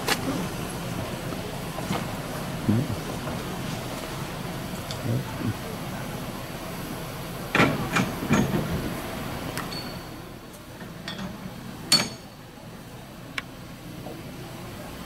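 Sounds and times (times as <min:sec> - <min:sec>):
ringing metallic clinks: 0:09.7 - 0:10.2, 0:11.9 - 0:12.3.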